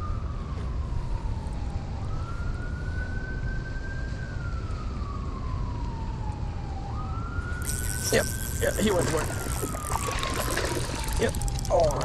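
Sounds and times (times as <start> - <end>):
emergency siren wailing: 0.0 - 12.0.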